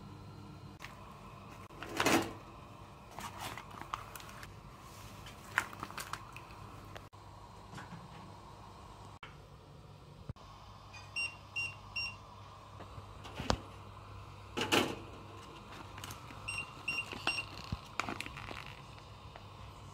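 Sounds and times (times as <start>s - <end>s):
plastic bag crinkling: 3.2s - 4.6s, 5.2s - 6.6s, 17.0s - 19.1s.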